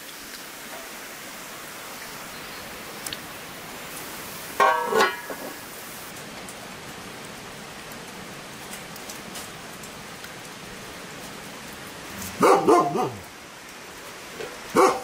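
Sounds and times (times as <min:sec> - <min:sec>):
rain pattering: 0:00.0 - 0:15.0
dog barking: 0:12.3 - 0:13.3, 0:14.7 - 0:15.0.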